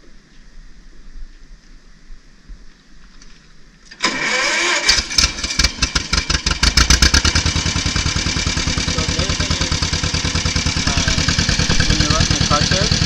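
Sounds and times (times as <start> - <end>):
starter motor cranking: 3.9 - 13.0
tractor engine idling: 4.0 - 13.0.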